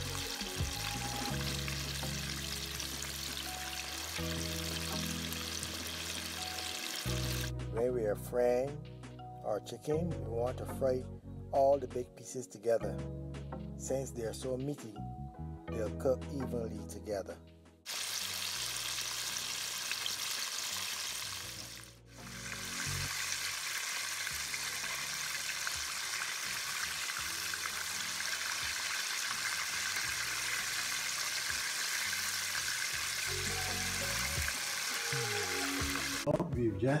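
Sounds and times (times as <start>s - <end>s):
chicken deep-frying in oil: 0.0s - 7.5s, 17.9s - 36.3s
soft background music: 0.0s - 37.0s.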